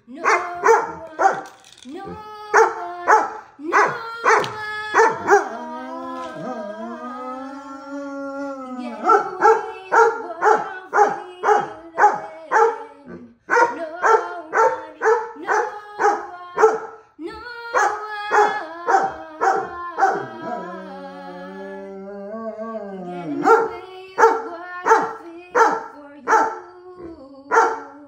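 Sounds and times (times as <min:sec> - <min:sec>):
dog barking: 0:00.2 - 0:01.5, 0:02.5 - 0:05.5, 0:09.0 - 0:12.8, 0:13.5 - 0:17.0, 0:17.8 - 0:20.4, 0:23.4 - 0:26.6, 0:27.5 - 0:28.0
woman singing held note: 0:18.1 - 0:22.1.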